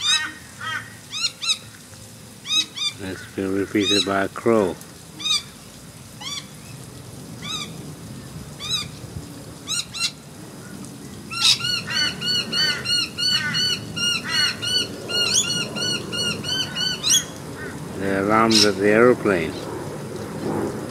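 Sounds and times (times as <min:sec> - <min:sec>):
bird ringing alarm calls: 0:00.0 - 0:01.7, 0:02.4 - 0:04.2, 0:05.2 - 0:05.5, 0:11.3 - 0:17.7, 0:18.5 - 0:18.8.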